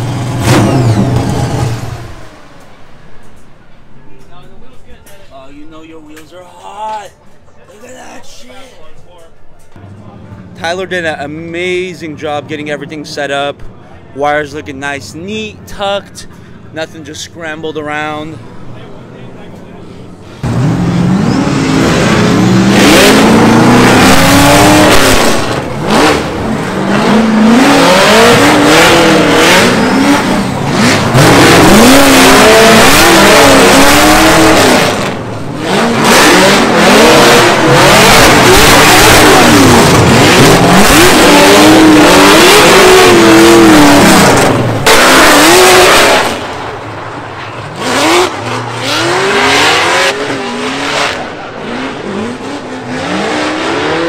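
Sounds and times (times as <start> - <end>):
car engines revving at full throttle: 0.0 - 3.6, 14.7 - 54.0.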